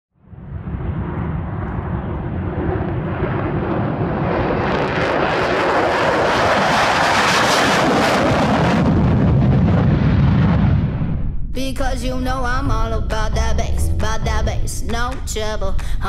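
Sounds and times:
jet engine roaring: 0.2 - 11.5.

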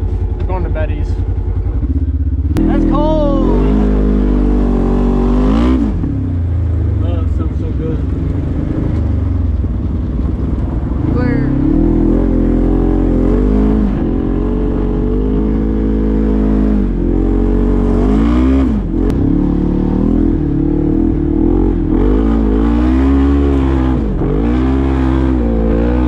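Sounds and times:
utility vehicle engine revving: 0.0 - 26.0.

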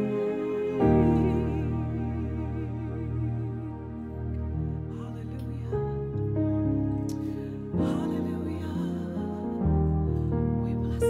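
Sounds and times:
woman singing worship song: 0.0 - 3.9, 7.8 - 9.7.

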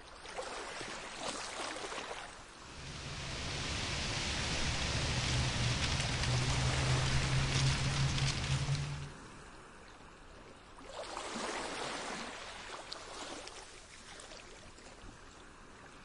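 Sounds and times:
wind blowing: 2.4 - 9.8.

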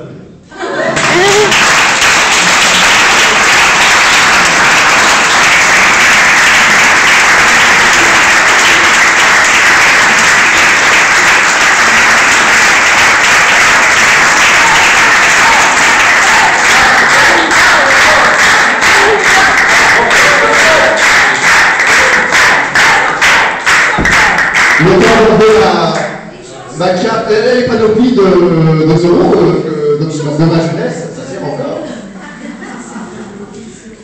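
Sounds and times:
audience applauding: 0.8 - 25.4.

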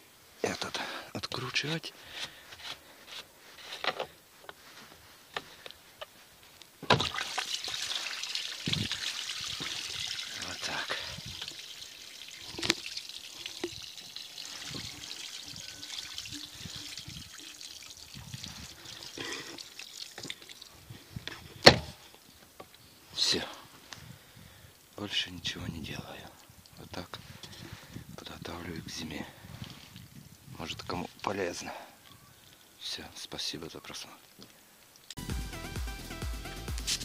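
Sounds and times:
water gushing onto soil: 6.8 - 21.3.

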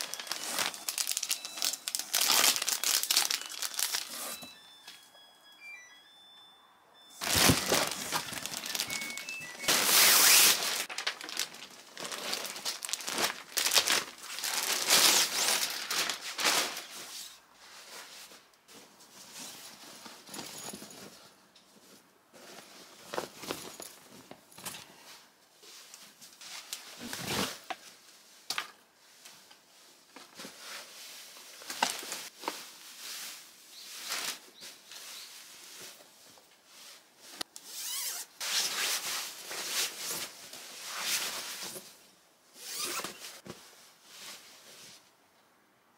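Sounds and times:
plastic packaging crinkling: 0.0 - 4.5, 7.2 - 17.0
fabric rubbing: 7.2 - 10.9.

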